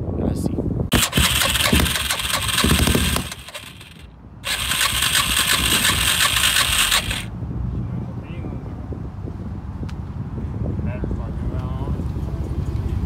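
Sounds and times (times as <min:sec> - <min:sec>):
electric starter cranking engine: 0:00.9 - 0:07.3.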